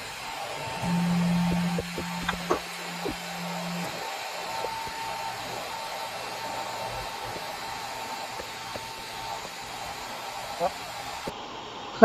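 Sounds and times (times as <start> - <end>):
machine whir: 0.0 - 11.3
thin whine of axis motors: 0.0 - 11.3.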